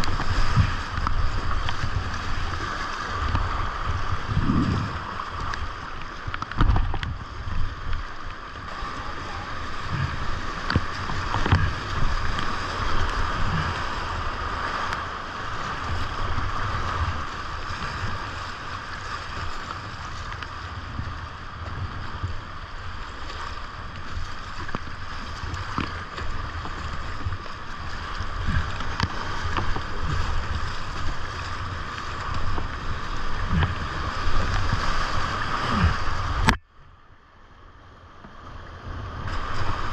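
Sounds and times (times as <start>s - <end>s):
wind buffeting microphone: 0.0s - 8.1s, 15.4s - 36.6s
paddle splashes: 0.0s - 36.6s, 39.0s - 39.9s
whitewater rapids rushing: 7.6s - 36.6s.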